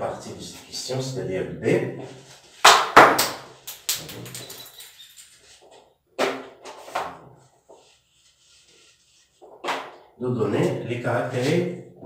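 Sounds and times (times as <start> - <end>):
eraser wiping a whiteboard: 2.0 - 2.7, 7.4 - 10.0.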